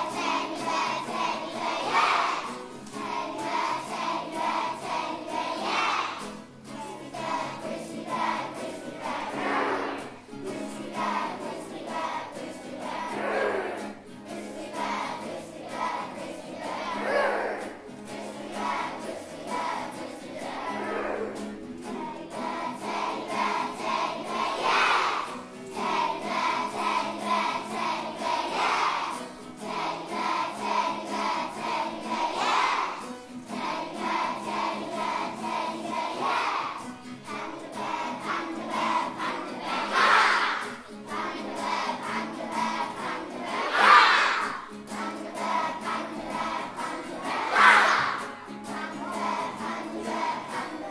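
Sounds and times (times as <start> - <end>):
children shouting yeah: 0.0 - 2.6, 5.5 - 7.0, 9.0 - 10.3, 13.0 - 14.0, 16.6 - 17.9, 20.4 - 21.6, 24.2 - 25.4, 32.2 - 33.0, 36.0 - 36.9, 38.0 - 50.9
children singing: 0.0 - 50.9.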